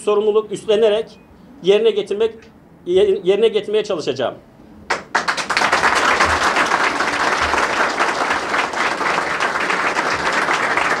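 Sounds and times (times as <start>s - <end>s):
crowd applauding: 4.9s - 11.0s.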